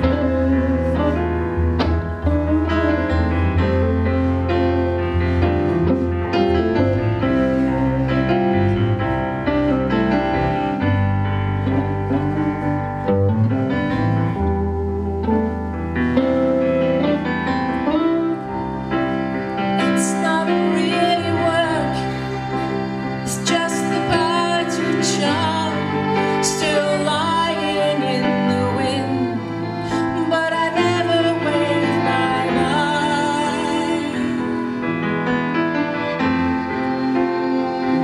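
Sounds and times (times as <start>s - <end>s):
electric bass guitar: 0.0s - 20.0s
electric guitar: 0.0s - 38.0s
woman singing: 19.8s - 22.3s, 23.2s - 34.6s.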